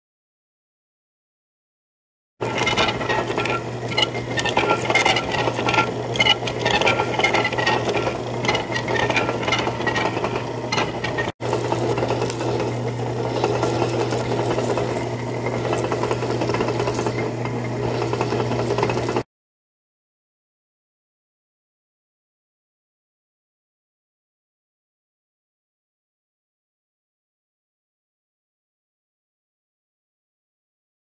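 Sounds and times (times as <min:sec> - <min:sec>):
high squeal of cutting: 0:02.4 - 0:19.2
lathe motor hum: 0:02.4 - 0:19.2
lathe tool cutting metal: 0:02.4 - 0:19.2.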